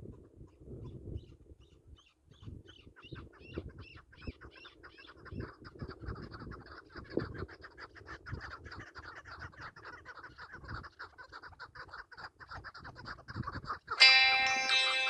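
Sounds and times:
partridge clucking calls: 0:00.1 - 0:15.0
plucked-string music: 0:14.0 - 0:15.0.

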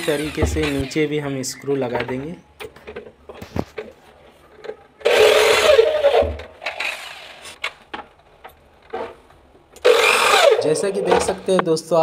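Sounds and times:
screw grinding creak: 0:00.0 - 0:01.0.

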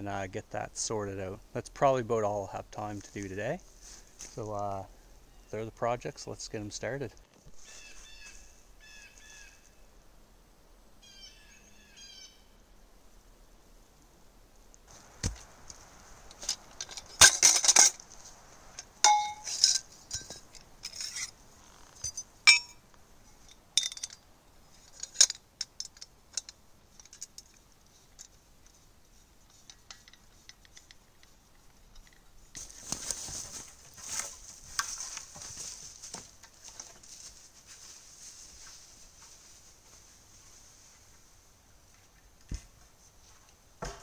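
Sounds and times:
footsteps through dry leaves: 0:07.5 - 0:09.5, 0:32.6 - 0:40.8
metal tubes clinking: 0:16.3 - 0:18.0, 0:18.7 - 0:21.4, 0:22.0 - 0:22.8, 0:23.4 - 0:27.6.

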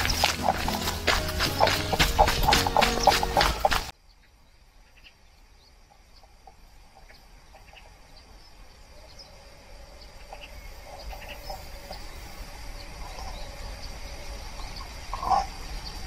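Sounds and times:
music with steady beat: 0:00.0 - 0:03.9
faint bird chirps: 0:04.0 - 0:16.0.

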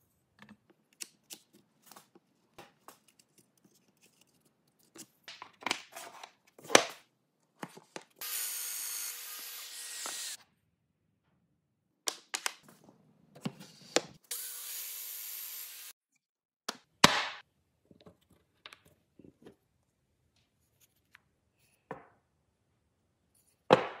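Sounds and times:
power joiner cutting: 0:08.2 - 0:10.4, 0:14.3 - 0:15.9.

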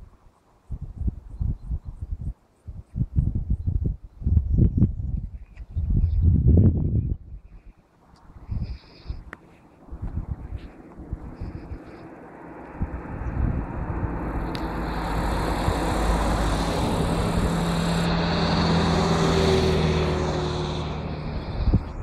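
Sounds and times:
vehicle passing on road: 0:08.7 - 0:22.0.

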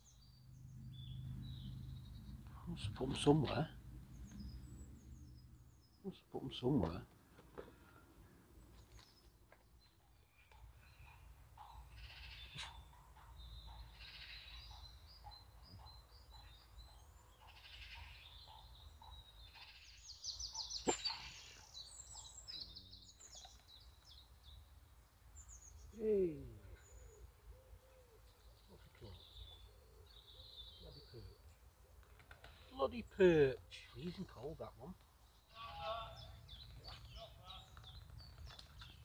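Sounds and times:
birds singing and chirping: 0:00.0 - 0:39.0
bird trill: 0:10.1 - 0:24.6.

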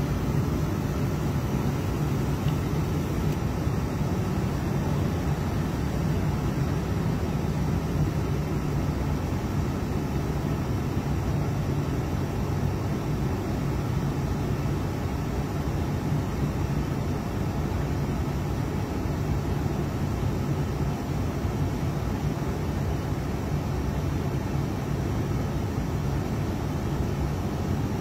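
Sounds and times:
vehicle engine humming: 0:00.0 - 0:07.5.

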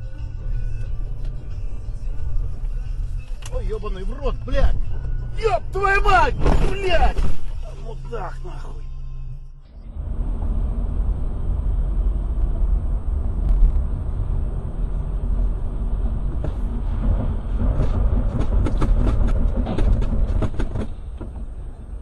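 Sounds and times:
car engine and tyres rumbling: 0:00.0 - 0:22.0
sharp clicks and knocks: 0:16.3 - 0:21.5.

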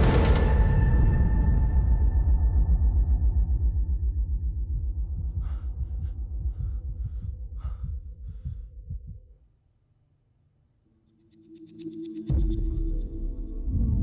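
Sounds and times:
low heartbeat-like throb: 0:00.0 - 0:09.5, 0:12.3 - 0:14.0.

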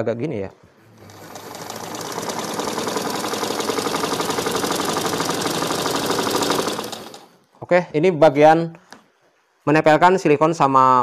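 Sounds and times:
sewing machine stitching: 0:00.8 - 0:07.4.

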